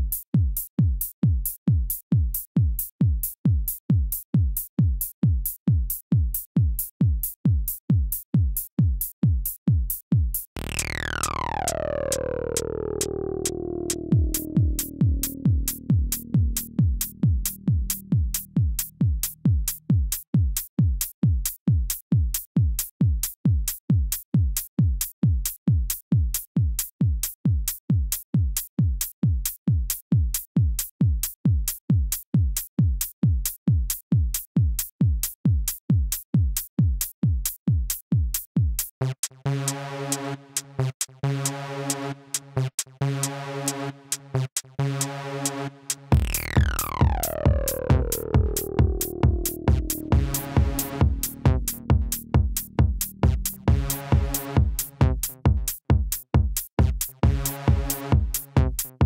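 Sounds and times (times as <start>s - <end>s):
drum machine kick: 0.0s - 38.9s, 46.1s - 59.0s
stuttering synth chord: 10.6s - 18.0s, 46.1s - 55.0s.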